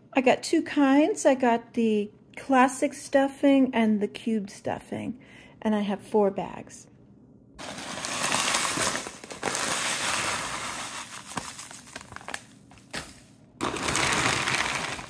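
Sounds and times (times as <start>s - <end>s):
dry crumbs pouring into bowl: 7.6s - 11.6s, 13.6s - 15.0s
plastic bags crinkling: 7.6s - 15.0s.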